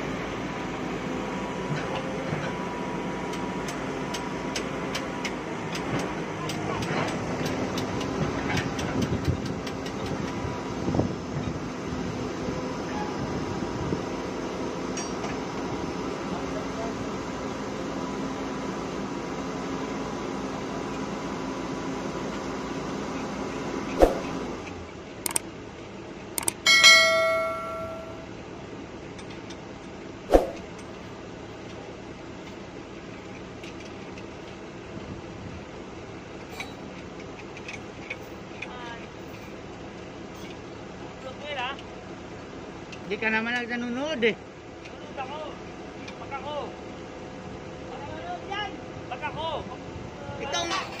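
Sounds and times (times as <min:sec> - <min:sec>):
excavator diesel engine: 0:00.0 - 0:51.0
quick double clicks: 0:26.4 - 0:26.6
bell chime: 0:26.7 - 0:28.3.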